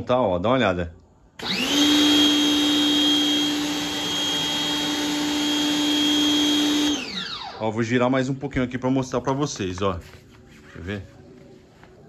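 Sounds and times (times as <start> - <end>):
pressure washer motor whine: 1.4 - 7.8.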